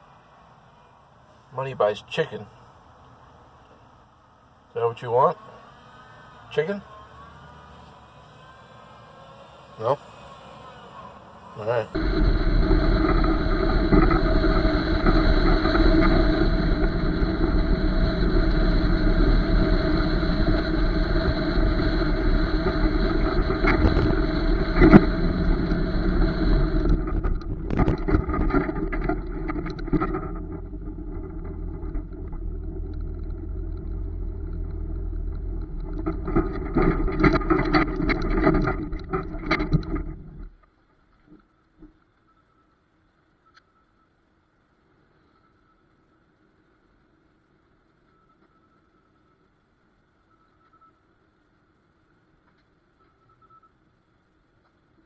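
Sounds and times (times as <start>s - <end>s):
truck engine: 5.4s - 40.5s
tyre noise: 11.9s - 40.5s
wind noise: 11.9s - 40.6s.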